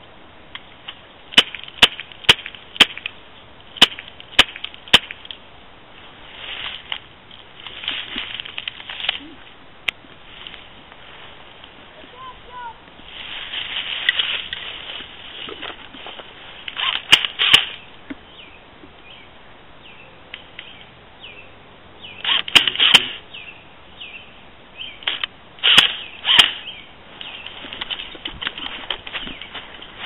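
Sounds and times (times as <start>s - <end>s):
footsteps crunching dry leaves: 6.0s - 9.5s, 10.2s - 17.9s, 27.1s - 30.0s
twig cracking: 6.6s - 10.6s, 25.0s - 30.0s.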